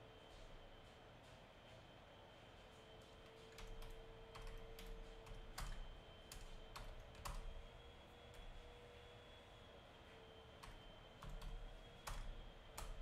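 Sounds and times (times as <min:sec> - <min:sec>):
typing on computer keyboard: 0:03.5 - 0:07.6, 0:10.6 - 0:13.0.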